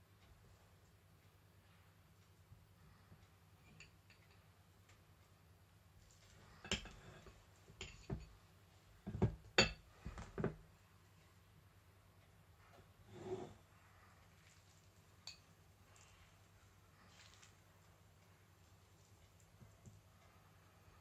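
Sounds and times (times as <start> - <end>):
cutlery clinking on ceramic: 3.6 - 4.4, 6.4 - 8.4, 9.1 - 9.9.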